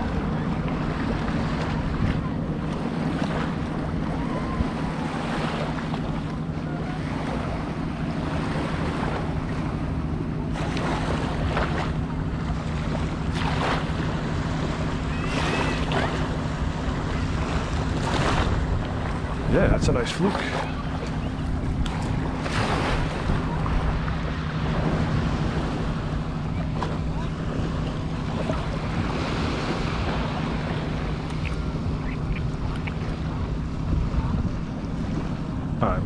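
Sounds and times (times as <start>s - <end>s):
low hum: 0.0s - 36.0s
small waves lapping shore: 0.0s - 36.0s
wind noise on microphone: 20.7s - 35.3s.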